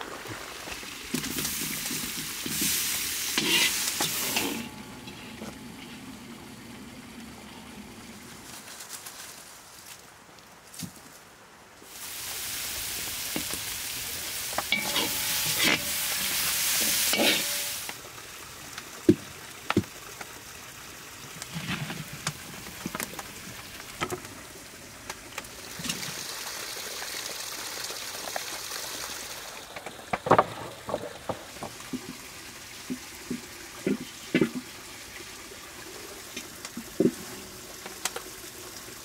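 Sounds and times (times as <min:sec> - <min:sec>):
food sizzling in hot oil: 0:01.1 - 0:06.0, 0:11.9 - 0:18.0
utensil knocking and scraping pot: 0:03.4 - 0:05.6, 0:14.7 - 0:17.8.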